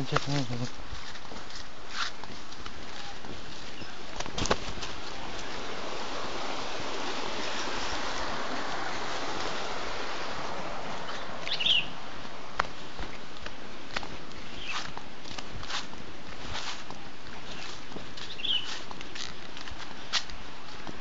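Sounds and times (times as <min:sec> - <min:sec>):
flowing stream water: 0:00.8 - 0:18.3
bird chirp: 0:11.1 - 0:12.0, 0:14.5 - 0:14.9, 0:18.3 - 0:18.7.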